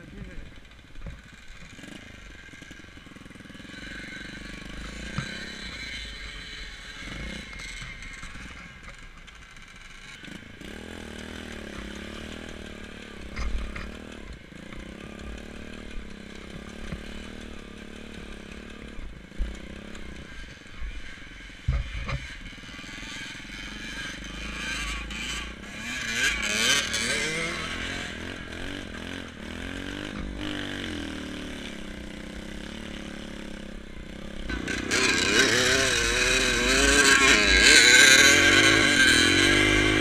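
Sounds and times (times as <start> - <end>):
motorcycle engine revving: 0.0 - 40.0.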